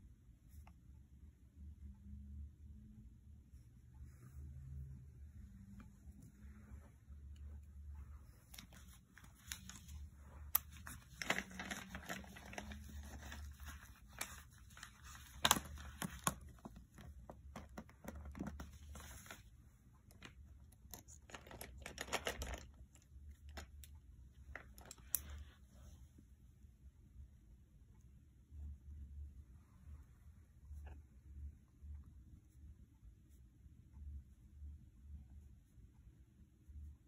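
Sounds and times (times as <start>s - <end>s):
paper sheets rustling: 8.2s - 16.8s.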